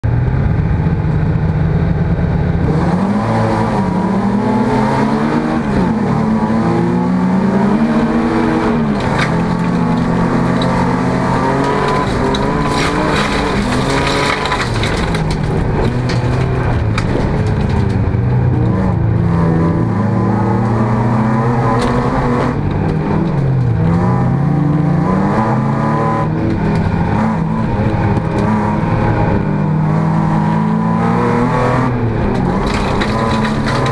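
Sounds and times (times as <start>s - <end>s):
race car engine revving: 0.0s - 33.9s
sharp clicks and clatter: 8.2s - 19.0s, 26.4s - 28.6s, 32.2s - 33.9s.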